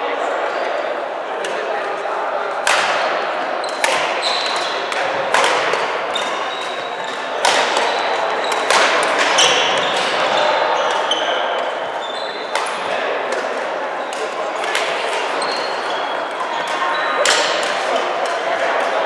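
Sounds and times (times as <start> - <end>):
rackets striking shuttlecock: 2.6 - 11.8, 12.5 - 19.0
shoes squeaking on wooden floor: 12.0 - 12.5.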